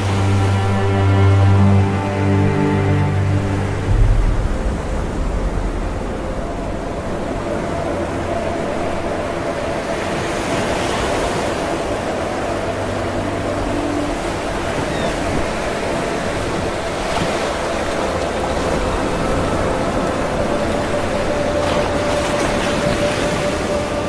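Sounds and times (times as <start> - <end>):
waves breaking on a beach: 0.0 - 24.0.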